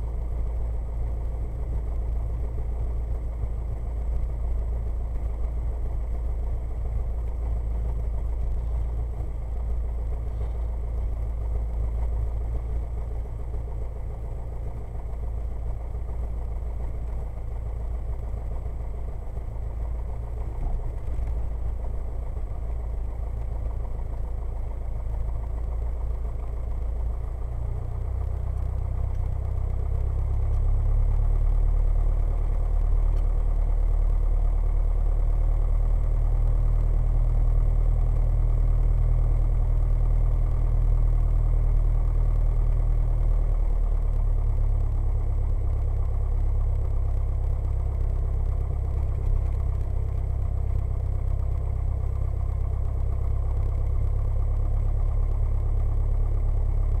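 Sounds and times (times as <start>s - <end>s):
propeller plane engine droning: 0.0s - 57.0s.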